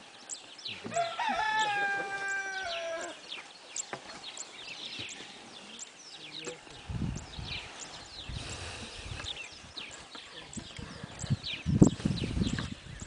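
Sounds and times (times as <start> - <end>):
small birds chirping: 0.0 - 13.0
rooster crowing: 0.9 - 3.2.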